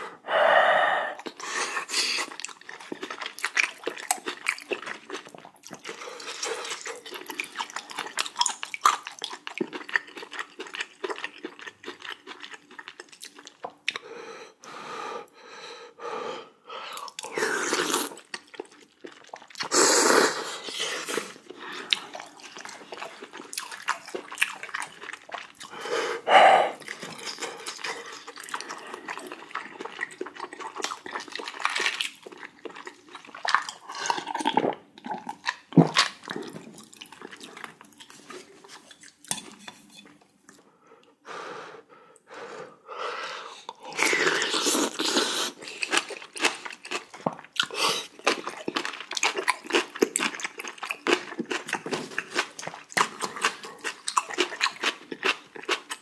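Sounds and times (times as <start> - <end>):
wet chewing with crunches: 1.2 - 14.0, 17.0 - 19.8, 20.6 - 40.6, 43.9 - 56.0.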